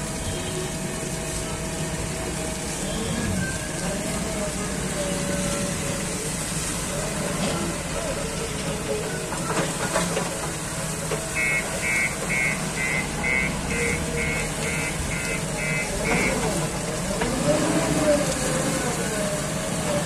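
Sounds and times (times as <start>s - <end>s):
diesel engine running: 0.0s - 20.0s
electronic beeper: 11.4s - 16.4s.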